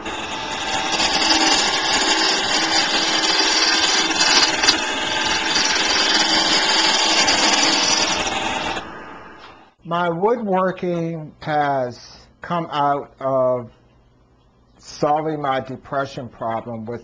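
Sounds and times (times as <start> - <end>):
lathe tool scraping spinning wood: 0.0 - 9.7
low motor hum: 0.0 - 9.7.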